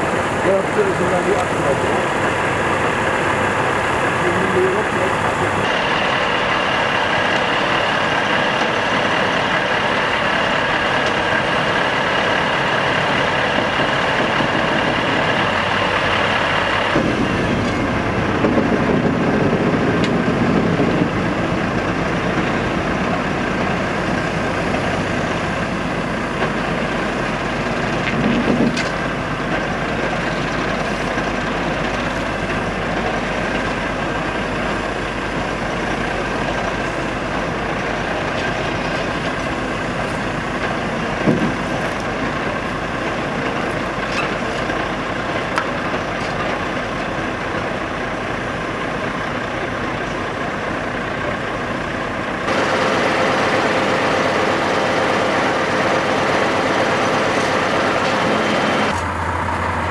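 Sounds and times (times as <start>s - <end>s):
diesel engines running: 0.0s - 59.9s
high whine: 0.0s - 59.9s.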